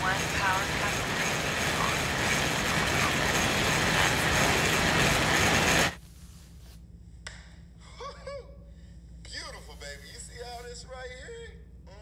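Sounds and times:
loud rushing static noise: 0:00.0 - 0:06.0.

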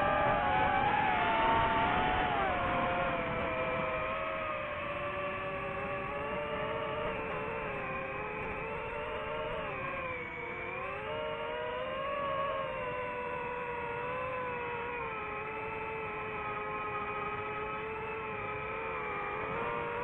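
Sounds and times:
drone propellers whining: 0:00.0 - 0:20.0.

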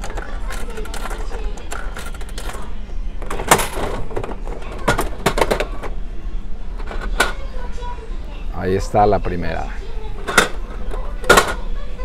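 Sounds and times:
capsule toy machine clicking: 0:00.0 - 0:05.9.

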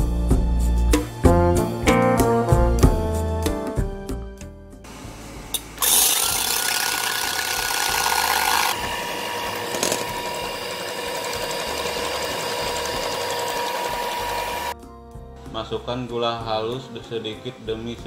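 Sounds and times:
electric hand mixer whining: 0:05.7 - 0:14.8.

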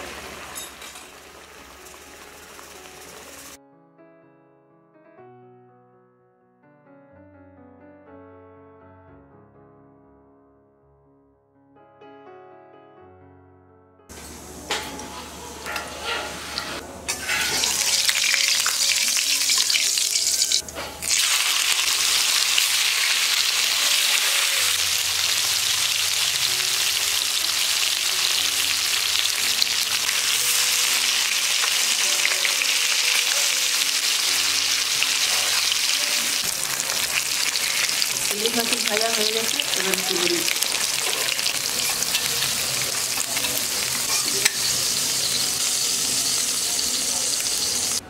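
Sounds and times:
food sizzling in hot oil: 0:00.0 - 0:03.6, 0:14.2 - 0:48.0.

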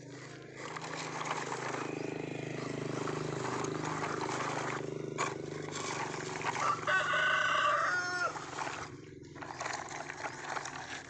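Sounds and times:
rooster crowing: 0:06.5 - 0:08.7.

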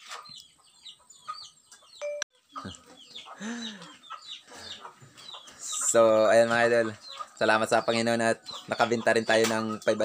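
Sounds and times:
chickens chirping: 0:00.0 - 0:10.0.

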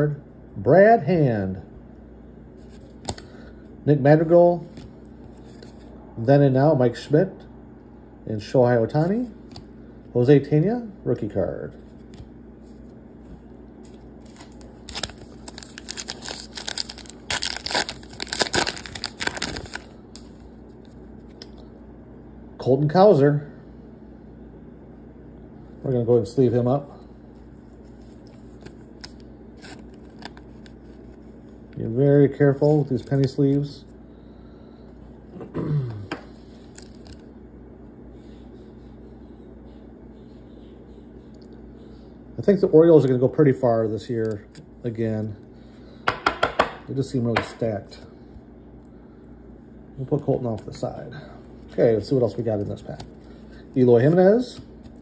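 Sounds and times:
plastic sleeve handling: 0:11.8 - 0:21.5, 0:27.4 - 0:31.8
wrapper being torn and crinkled: 0:13.9 - 0:20.3.

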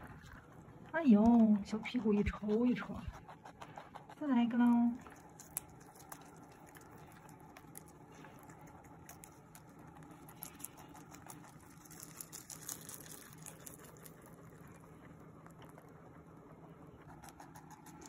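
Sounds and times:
rabbit chewing crisp stems: 0:00.0 - 0:18.0.

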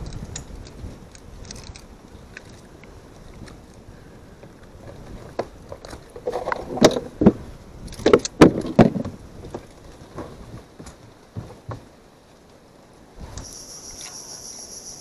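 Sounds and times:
knocks and thuds in boat: 0:04.8 - 0:12.0.

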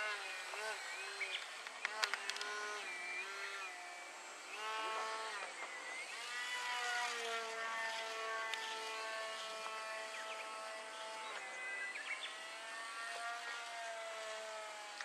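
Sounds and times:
model plane motor whining: 0:00.0 - 0:15.0
sharp clicks: 0:01.4 - 0:02.6.

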